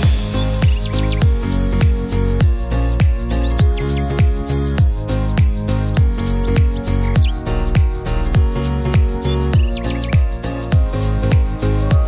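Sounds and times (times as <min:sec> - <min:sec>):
music with kick-drum beat: 0:00.0 - 0:12.0.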